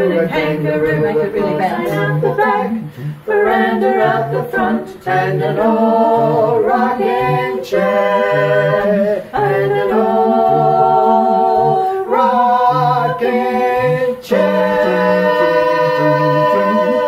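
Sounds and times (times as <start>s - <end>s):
repeating bass line: 0.0s - 17.0s
voices singing in harmony: 0.0s - 17.0s.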